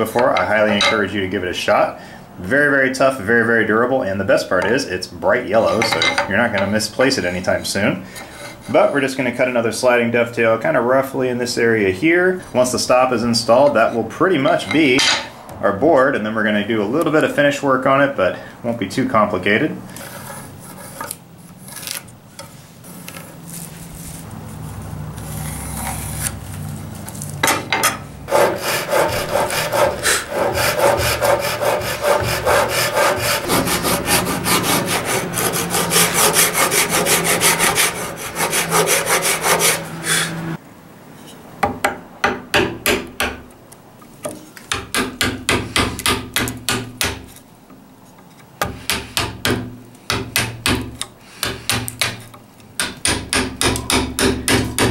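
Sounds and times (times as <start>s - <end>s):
handsaw cutting wood: 28.3s - 40.6s.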